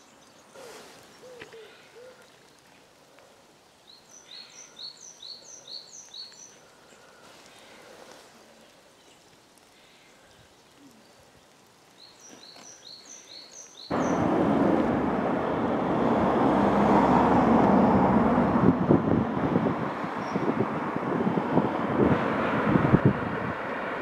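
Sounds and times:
small bird chirping: 3.8 - 7.0, 10.3 - 14.2
diesel locomotive engine rumbling: 13.9 - 20.0
wind buffeting microphone: 13.9 - 24.0.

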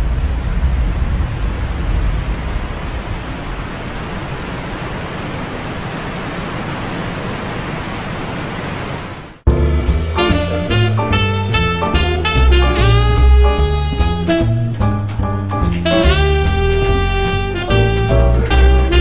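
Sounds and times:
low rumble: 0.0 - 4.4
steady rushing noise: 0.0 - 10.5.

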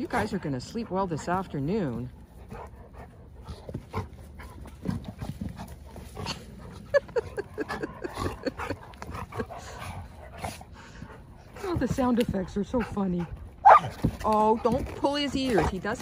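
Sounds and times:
dogs snorting and grunting: 0.0 - 16.0.

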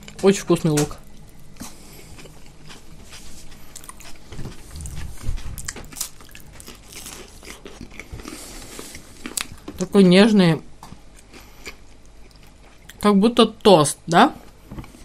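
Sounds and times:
biting and chewing crisp bread: 1.0 - 10.0, 10.9 - 13.0.

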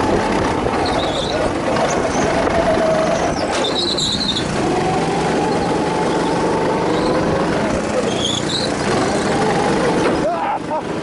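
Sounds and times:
go-kart engine revving: 0.0 - 11.0
high squeals: 0.8 - 10.3.

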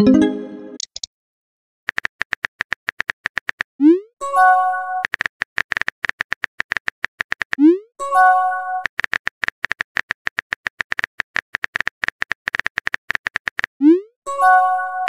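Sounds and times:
multi-tone message chime: 0.0 - 0.8
phone keyboard typing clicks: 1.9 - 3.7, 5.0 - 7.6, 8.8 - 13.7.

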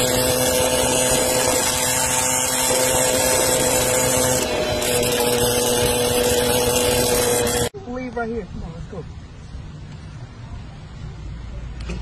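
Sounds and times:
moped engine running: 0.0 - 7.7
wind and road noise: 0.0 - 12.0.

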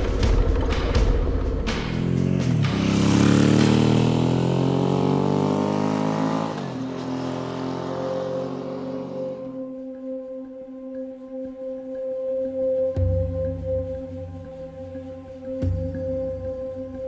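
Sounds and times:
motorcycle engine accelerating: 0.0 - 9.5.

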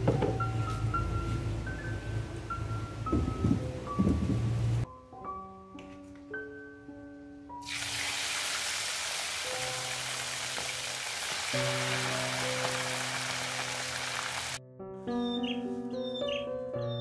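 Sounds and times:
chicken deep frying sizzle: 7.6 - 14.6.

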